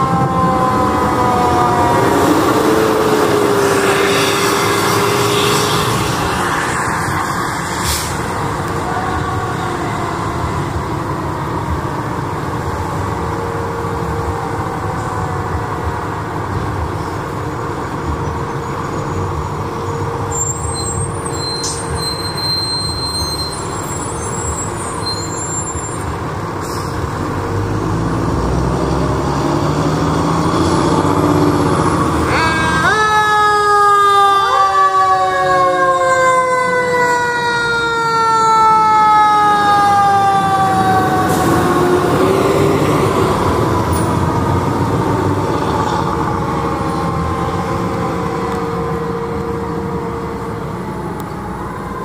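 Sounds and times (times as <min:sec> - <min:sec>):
diesel truck engine rumbling: 0:00.0 - 0:34.3, 0:35.0 - 0:52.0.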